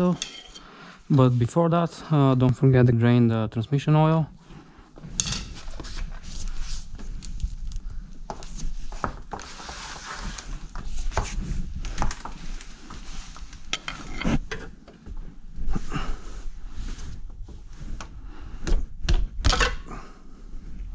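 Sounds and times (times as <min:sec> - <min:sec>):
rubbing and rustle: 0:05.5 - 0:07.7, 0:08.4 - 0:18.0.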